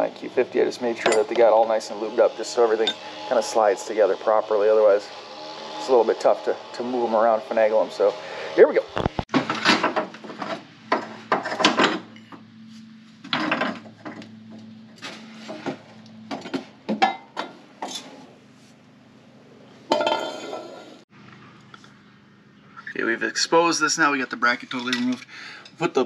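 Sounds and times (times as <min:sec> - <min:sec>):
metal tools clinking and clattering: 0:01.0 - 0:01.4, 0:19.9 - 0:20.9, 0:24.5 - 0:25.8.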